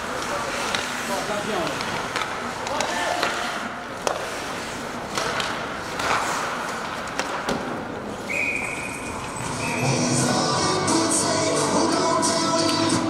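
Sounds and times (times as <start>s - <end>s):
sticks and puck clacking: 0.0s - 9.6s, 12.5s - 13.0s
skates scraping on ice: 0.0s - 10.2s
whistle blast: 8.3s - 10.0s.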